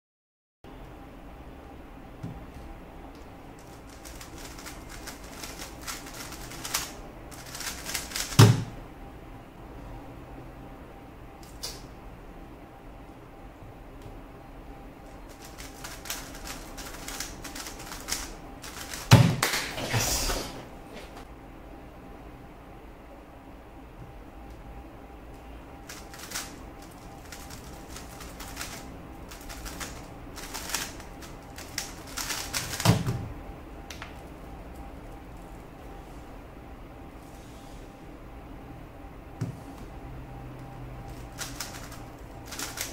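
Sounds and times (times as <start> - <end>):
puzzle cube clicking turns: 3.6 - 8.4, 15.3 - 19.5, 25.8 - 33.0, 41.1 - 42.9.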